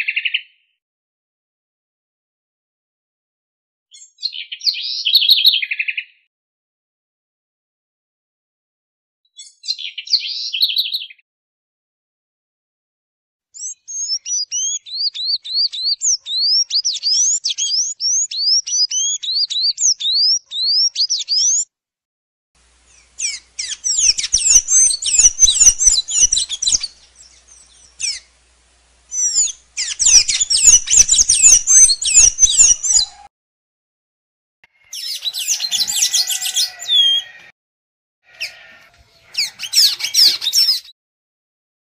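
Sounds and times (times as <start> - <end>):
bird singing: 13.6 - 21.6, 22.8 - 28.4, 29.1 - 33.3, 34.8 - 37.5, 38.3 - 40.9.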